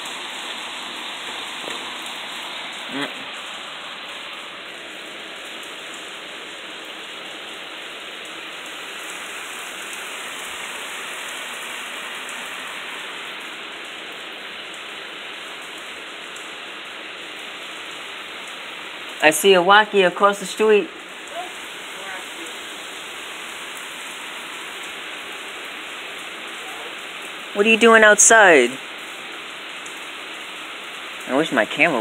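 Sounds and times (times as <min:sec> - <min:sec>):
heavy rain pouring: 0:00.0 - 0:32.0.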